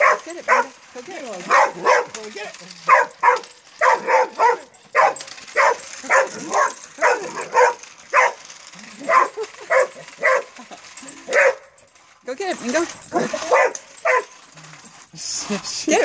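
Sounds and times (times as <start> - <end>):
dog barking excitedly: 0.0 - 0.8, 1.4 - 2.2, 2.8 - 10.6, 11.2 - 11.8, 12.9 - 14.4.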